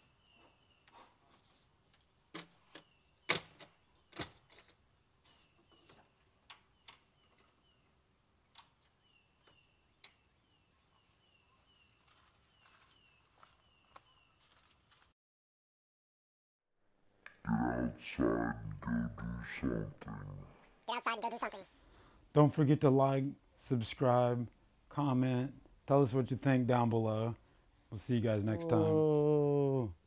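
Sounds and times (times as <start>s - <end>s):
bird chirping: 0.0s - 1.1s, 2.3s - 14.5s.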